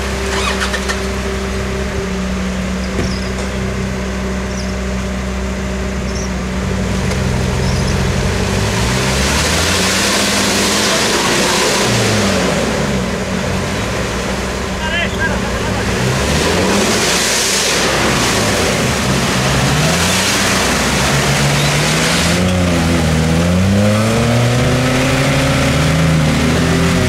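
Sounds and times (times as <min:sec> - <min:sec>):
suv engines revving: 0:00.0 - 0:27.0
mud slurry rushing: 0:06.4 - 0:27.0.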